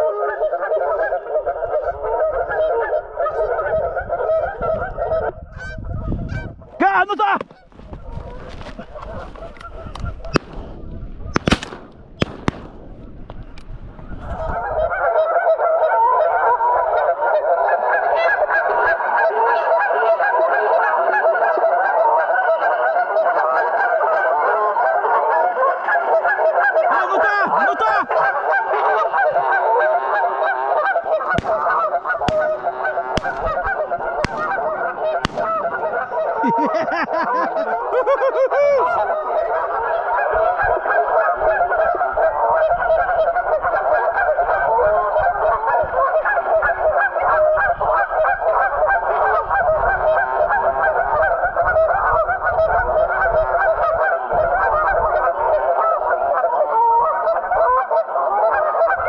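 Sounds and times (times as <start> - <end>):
geese honking: 0.0 - 59.0
sharp clicks: 11.4 - 13.7, 31.1 - 36.0.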